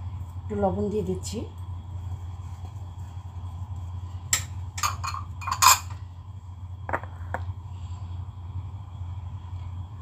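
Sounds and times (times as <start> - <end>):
steady low hum: 0.0 - 10.0
glass and ceramic bowls clinking: 4.8 - 6.0.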